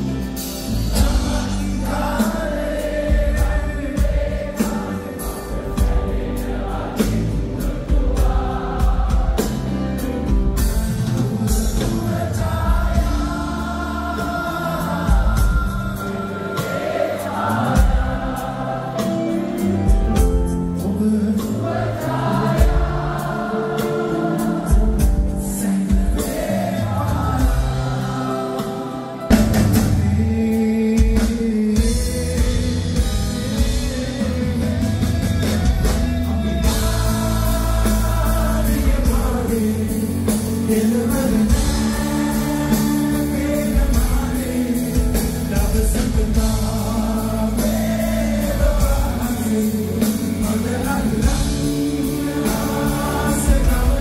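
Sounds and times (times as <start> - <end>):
live band playing: 0.0 - 54.0
person singing: 19.0 - 54.0.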